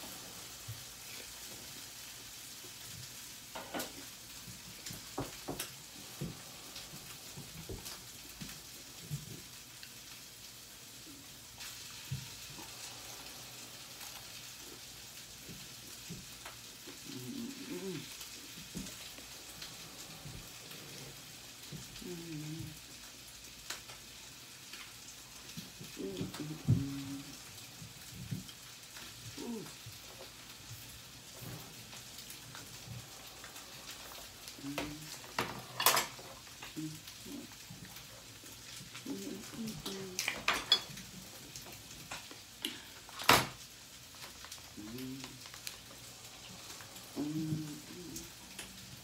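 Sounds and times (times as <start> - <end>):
steady hiss: 0.0 - 49.0
person humming: 16.9 - 18.2, 18.8 - 22.8, 25.9 - 27.4, 29.3 - 29.8, 34.4 - 35.4, 36.7 - 37.6, 39.0 - 40.5, 44.8 - 45.5, 46.6 - 49.0.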